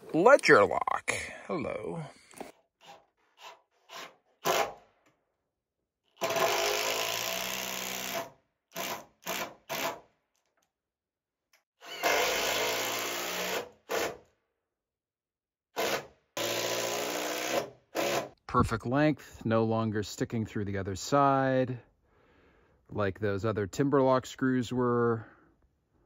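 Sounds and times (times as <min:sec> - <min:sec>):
cordless drill driving screws: 0:06.1 - 0:10.0, 0:11.8 - 0:14.2, 0:15.8 - 0:18.3.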